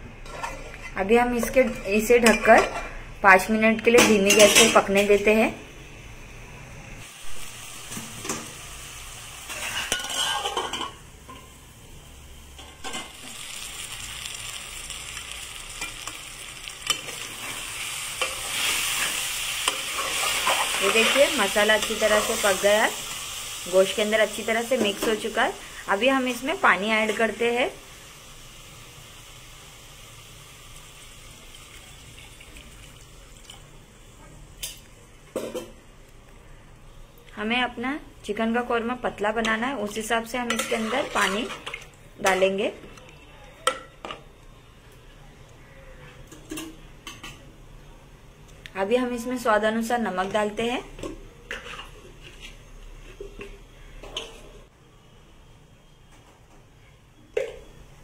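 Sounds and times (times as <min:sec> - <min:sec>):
food sizzling in a metal pot: 0:00.2 - 0:35.9, 0:37.6 - 0:42.9, 0:48.8 - 0:54.6
water pouring into a pot: 0:29.9 - 0:33.8.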